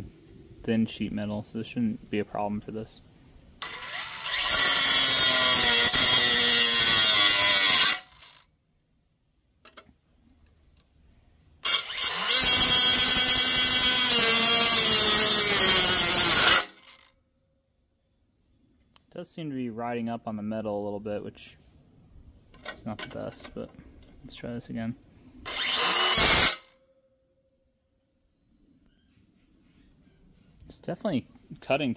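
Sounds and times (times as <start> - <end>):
cutoff tool cutting sheet metal: 3.6 - 8.4, 11.6 - 17.0, 25.5 - 26.7.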